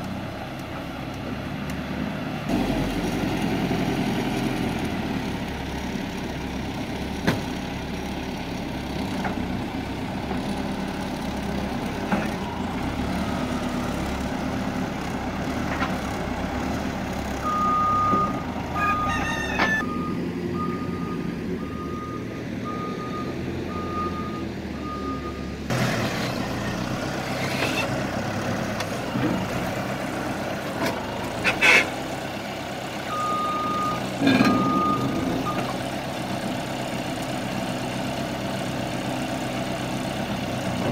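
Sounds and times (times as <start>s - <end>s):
diesel engine running: 0.0s - 40.9s
reversing alarm beeping: 17.4s - 25.5s, 33.1s - 35.7s.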